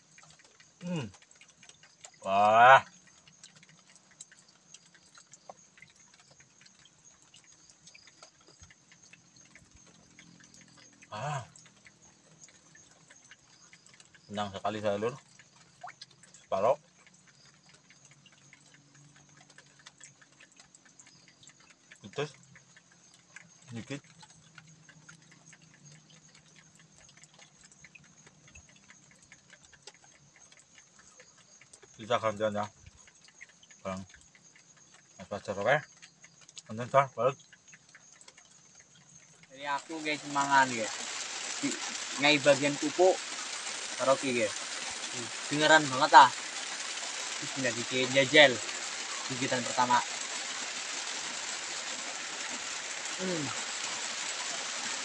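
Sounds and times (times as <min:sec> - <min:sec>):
faint small clicks: 0:00.0 - 0:39.6
faint high hiss: 0:39.6 - 0:55.0.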